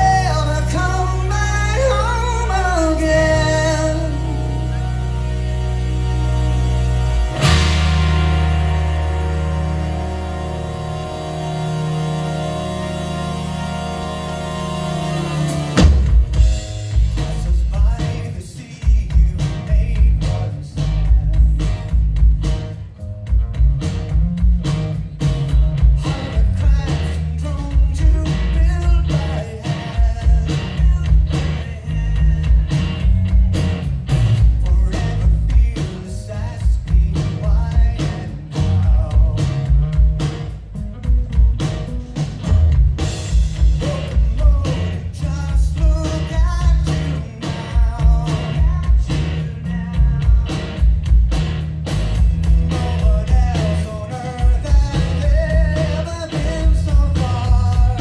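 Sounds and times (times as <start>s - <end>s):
person singing: 0.0s - 16.0s, 25.9s - 32.8s, 43.6s - 50.8s, 52.7s - 58.0s
live rock band playing: 0.0s - 58.0s.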